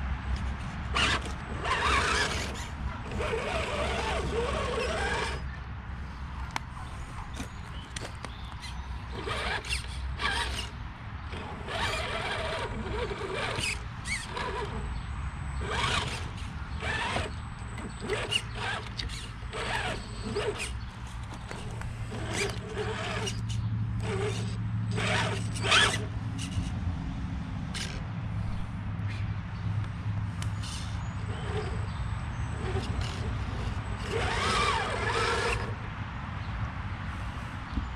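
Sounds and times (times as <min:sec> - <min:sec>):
tyres scraping on rock: 0:00.4 - 0:05.6, 0:06.8 - 0:15.0, 0:15.6 - 0:26.8, 0:30.4 - 0:35.8
rc car motor whining: 0:00.9 - 0:05.6, 0:08.5 - 0:26.7, 0:30.4 - 0:35.8.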